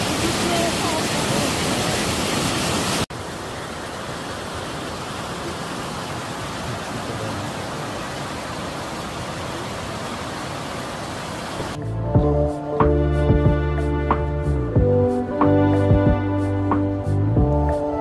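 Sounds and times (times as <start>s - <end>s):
shallow stream flowing: 0.0s - 11.8s
water rushing down cascade: 0.0s - 11.8s.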